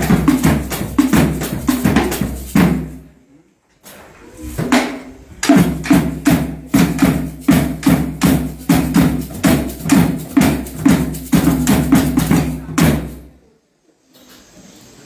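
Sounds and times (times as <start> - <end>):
hand drum beating: 0.0 - 2.9, 4.6 - 13.2.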